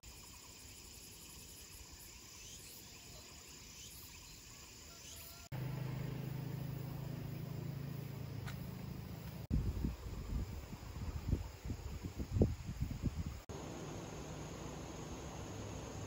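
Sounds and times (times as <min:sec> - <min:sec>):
faint insect chirps: 0:00.0 - 0:16.0
steady low hum: 0:13.5 - 0:16.0.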